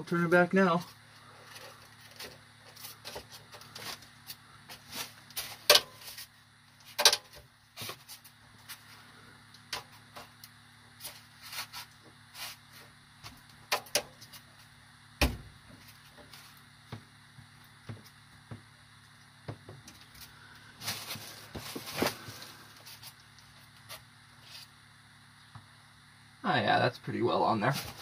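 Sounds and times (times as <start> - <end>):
dull thump: 15.2 - 15.6.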